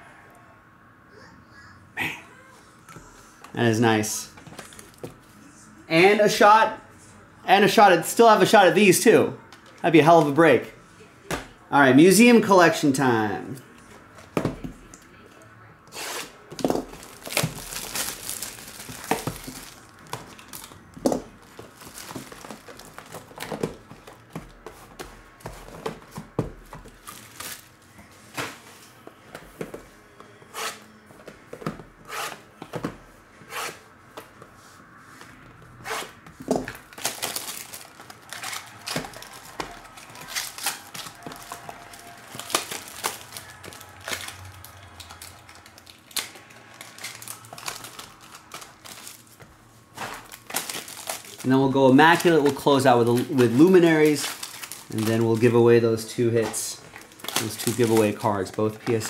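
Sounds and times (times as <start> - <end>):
cellophane wrap crinkling and tearing: 16.0 - 24.6, 26.8 - 27.8, 36.6 - 49.4, 50.0 - 59.0.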